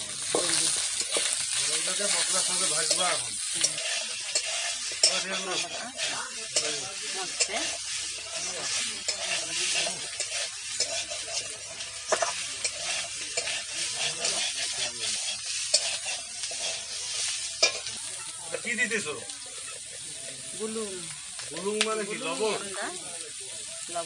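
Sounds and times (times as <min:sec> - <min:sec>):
fish sizzling in oil: 0:00.0 - 0:24.0
metal spatula scraping pan: 0:00.3 - 0:18.1.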